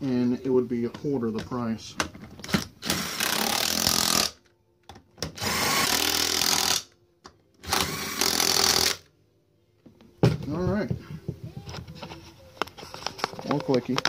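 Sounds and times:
power tool tightening lug nuts: 0:02.8 - 0:04.4, 0:05.3 - 0:06.9, 0:07.6 - 0:09.0.

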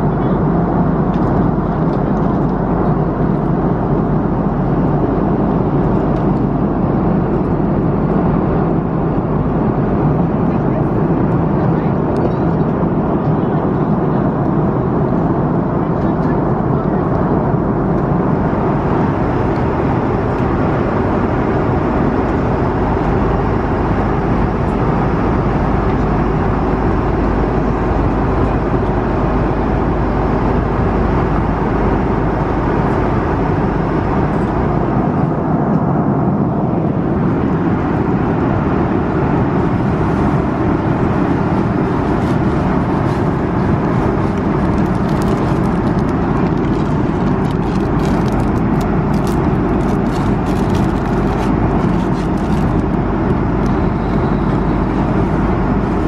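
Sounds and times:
airliner cabin roar: 0:00.0 - 0:56.0
faint clicks and rustles: 0:43.0 - 0:53.8.

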